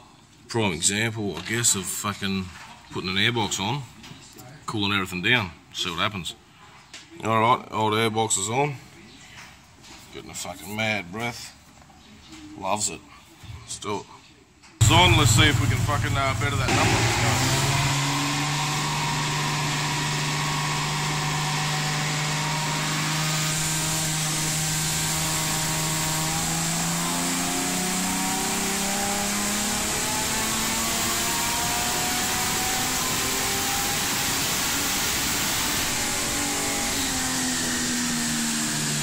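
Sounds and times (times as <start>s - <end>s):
car engine under load on dyno: 14.8s - 39.0s.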